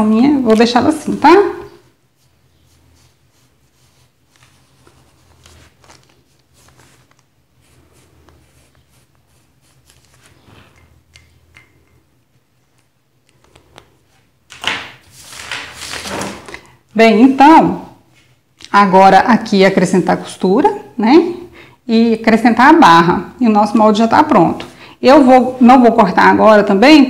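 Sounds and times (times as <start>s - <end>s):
paper rustle: 3.0s - 10.7s, 13.4s - 16.7s.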